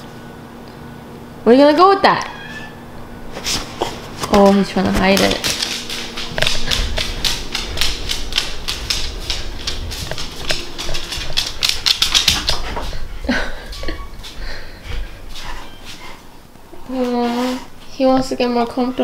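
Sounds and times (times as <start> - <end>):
handheld camera rustling and bumps: 3.3 - 13.1
dog claws clicking on wood floor: 4.2 - 12.8.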